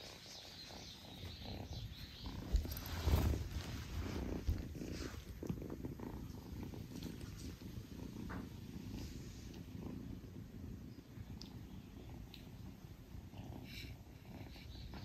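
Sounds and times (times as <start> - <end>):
soft rustles: 0.0 - 12.8
kitten purring: 0.0 - 15.0.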